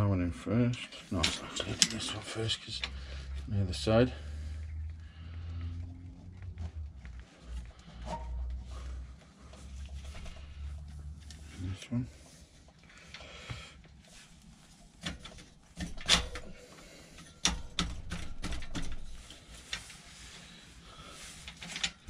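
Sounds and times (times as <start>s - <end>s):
metal parts clicking and knocking: 1.2s - 2.2s, 15.0s - 19.9s, 21.4s - 22.0s.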